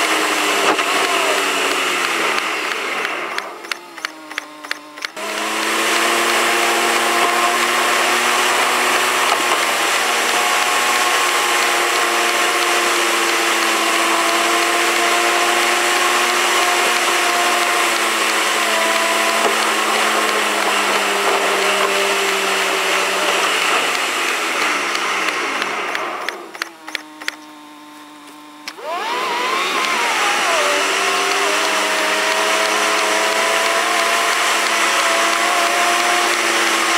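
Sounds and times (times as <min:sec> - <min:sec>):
road and wind noise: 0:00.0 - 0:27.9
car motor hum: 0:00.0 - 0:36.9.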